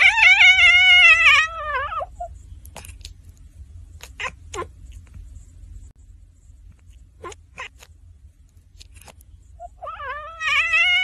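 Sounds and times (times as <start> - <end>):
cat meowing: 0.0 - 2.3, 4.0 - 4.8, 7.2 - 7.9, 9.6 - 11.0.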